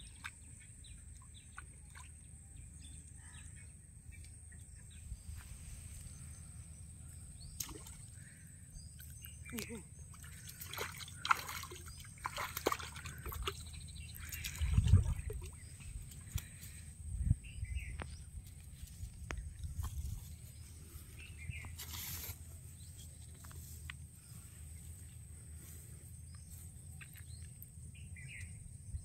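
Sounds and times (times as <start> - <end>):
fish splashing in shallow water: 7.4 - 16.9.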